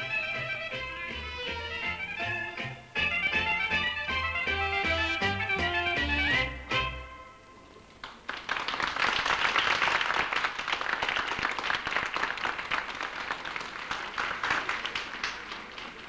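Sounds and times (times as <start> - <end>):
crowd clapping: 8.0 - 16.0.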